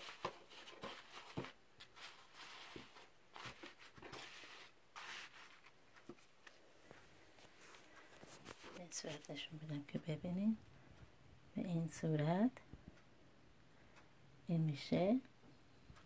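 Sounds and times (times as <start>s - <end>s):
nylon fabric rustling: 0.0s - 6.5s.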